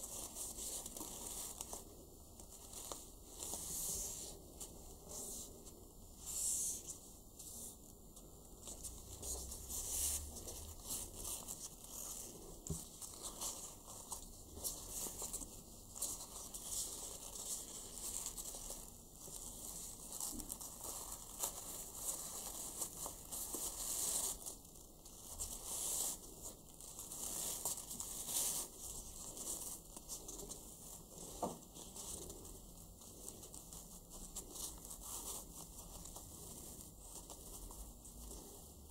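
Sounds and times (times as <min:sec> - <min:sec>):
ribbon rustling: 0:00.0 - 0:38.9.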